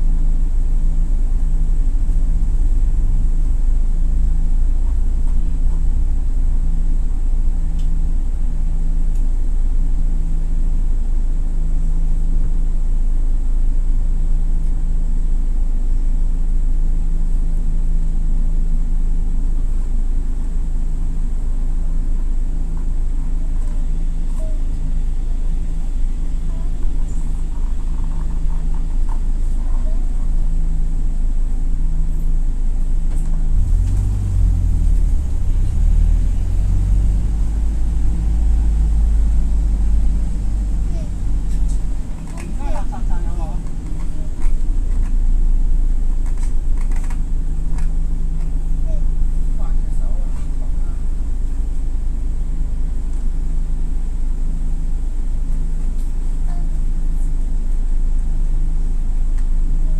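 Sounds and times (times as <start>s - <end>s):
bus engine running: 0.0s - 59.9s.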